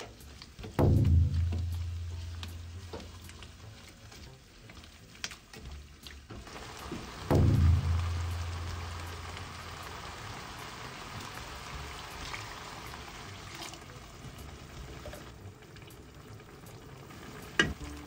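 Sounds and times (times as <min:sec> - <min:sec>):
spatula stirring: 0:00.0 - 0:06.4
food sizzling in a pot: 0:00.0 - 0:18.0
low hum: 0:00.8 - 0:03.5, 0:07.2 - 0:10.1
sharp knock: 0:07.3 - 0:08.7.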